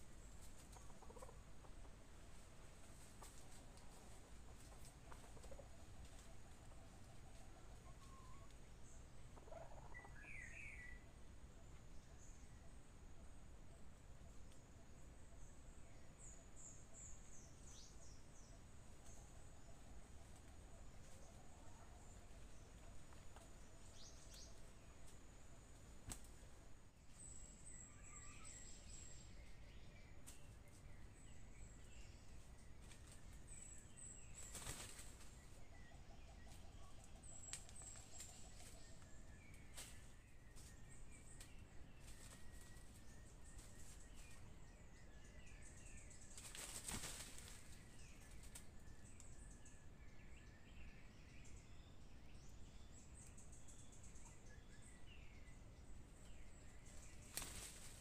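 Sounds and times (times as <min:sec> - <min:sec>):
small birds chirping: 0:00.0 - 0:13.0, 0:13.8 - 0:58.0.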